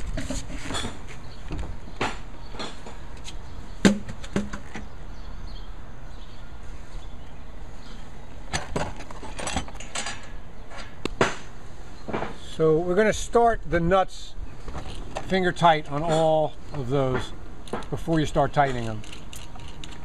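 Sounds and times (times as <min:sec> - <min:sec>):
metal parts knocking and clinking: 0:18.7 - 0:20.0.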